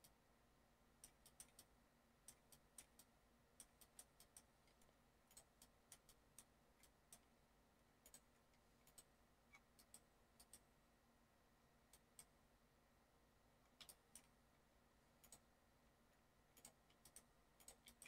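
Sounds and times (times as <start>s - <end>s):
faint steady hum: 0.0s - 18.0s
mouse and keyboard clicks: 1.0s - 7.3s, 8.0s - 10.7s, 13.7s - 14.4s, 15.2s - 15.5s, 16.6s - 18.0s.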